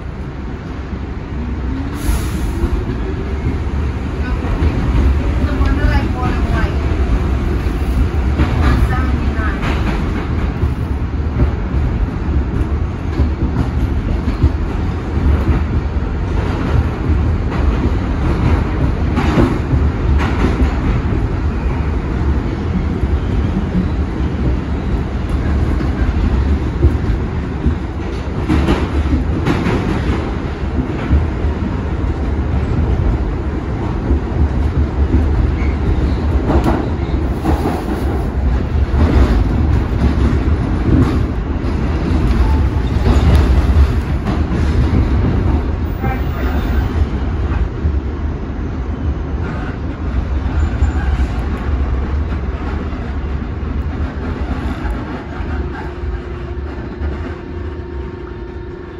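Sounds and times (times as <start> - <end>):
subway wheels rumbling on rail: 0.0 - 58.9
clacks over rail joints: 4.4 - 21.3, 22.8 - 47.9.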